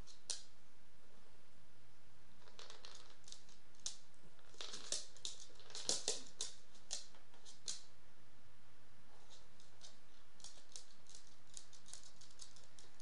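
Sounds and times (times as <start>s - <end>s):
dog claws clicking on wooden floor: 2.4s - 7.9s, 9.2s - 13.0s.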